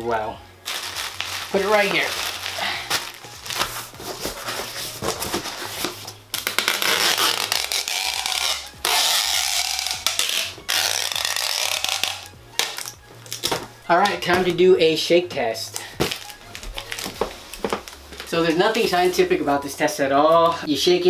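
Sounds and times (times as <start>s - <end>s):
cardboard and bubble wrap crinkling: 0.6s - 14.6s, 15.6s - 19.6s
tape gun pulling packing tape: 5.8s - 13.6s.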